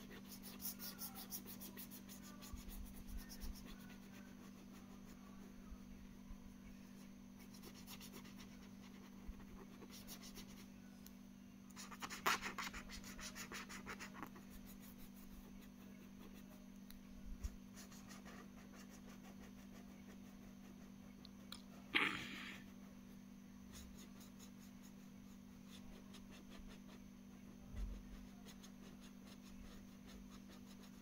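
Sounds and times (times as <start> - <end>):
marker scribbling on paper: 0.0 - 5.5, 7.4 - 10.6, 11.8 - 16.6, 17.4 - 21.2, 23.7 - 31.0.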